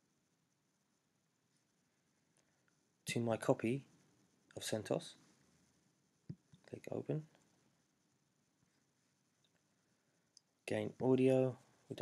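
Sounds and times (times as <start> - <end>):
tiny ticks: 9.4 - 9.7, 10.3 - 10.5.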